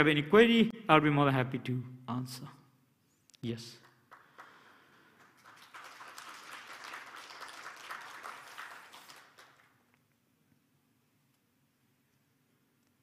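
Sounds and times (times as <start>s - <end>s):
audience applauding: 4.0s - 9.8s.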